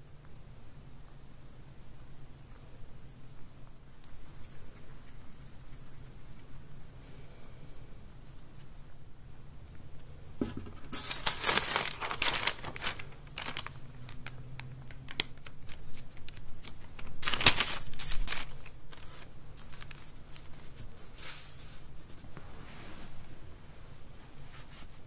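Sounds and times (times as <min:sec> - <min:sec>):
paper crinkling: 0:10.4 - 0:22.3.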